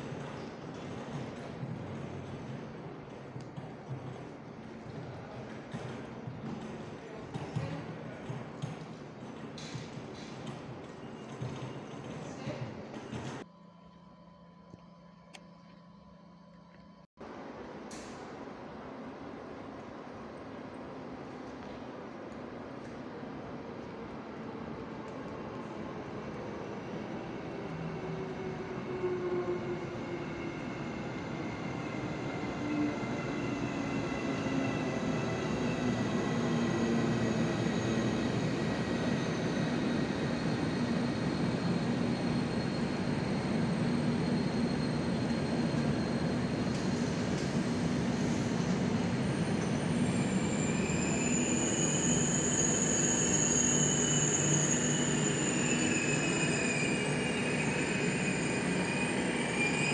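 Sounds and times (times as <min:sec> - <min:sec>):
passenger train rumbling: 0:00.0 - 0:13.5, 0:17.2 - 0:59.9
train wheels and brakes squealing: 0:04.9 - 0:13.4, 0:26.6 - 0:59.9.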